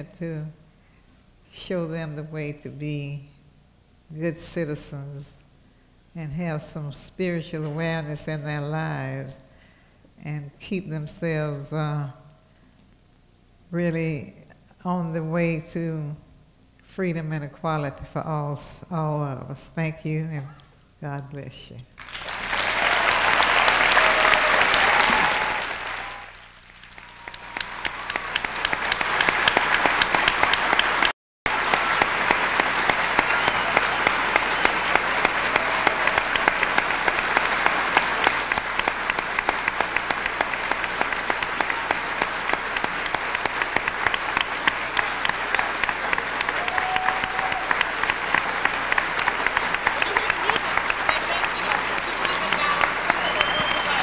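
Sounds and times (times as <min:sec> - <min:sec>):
audience applauding: 0:22.0 - 0:54.0.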